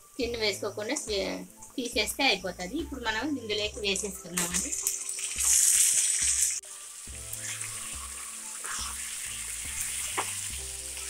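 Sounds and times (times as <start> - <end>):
chicken sizzling in hot oil: 4.0 - 11.0
spatula stirring: 7.3 - 10.7.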